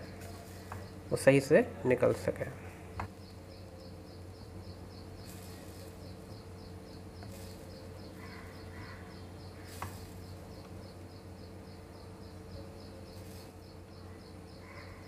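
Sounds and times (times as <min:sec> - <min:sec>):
low steady hum: 0:00.0 - 0:15.0
insect chirping: 0:03.1 - 0:15.0.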